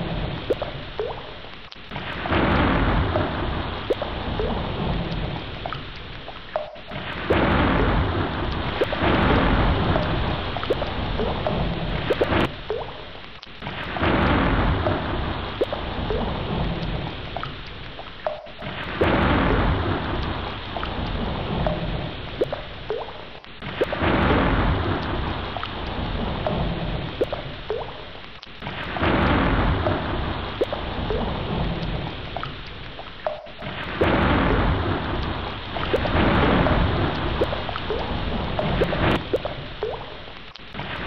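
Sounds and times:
heavy rain falling: 0.0 - 41.0
deep thunder rumbling: 2.0 - 5.7, 6.6 - 12.6, 13.9 - 17.4, 18.4 - 22.5, 23.7 - 27.8, 28.9 - 32.4, 33.6 - 40.0.

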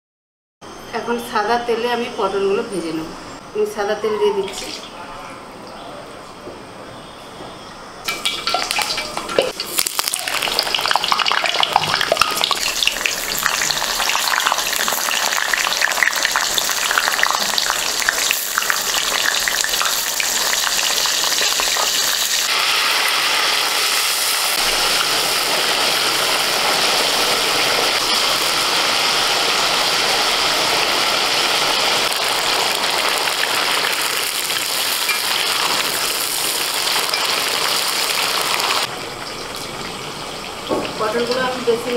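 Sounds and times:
vegetables sizzling in hot oil: 8.1 - 38.9.

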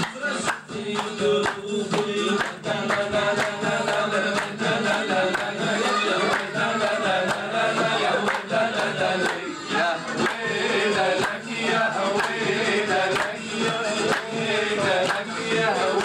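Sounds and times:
man singing through a microphone: 0.0 - 16.0
people clapping a steady beat: 0.0 - 16.0.

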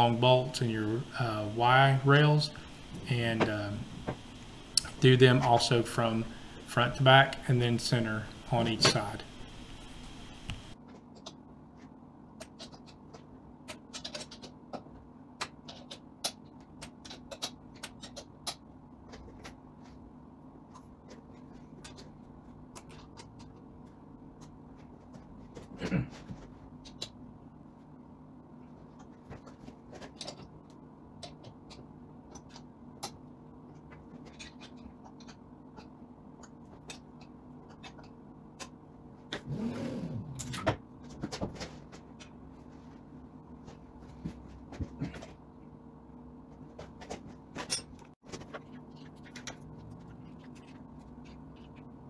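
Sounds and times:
steady low hum: 0.0 - 10.8, 17.8 - 52.0.

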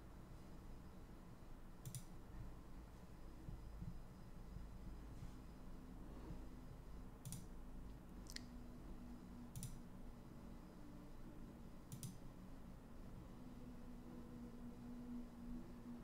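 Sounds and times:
low steady hum: 0.0 - 16.0
faint sharp clicks: 1.8 - 2.1, 7.2 - 7.5, 9.5 - 9.8, 11.9 - 12.2.

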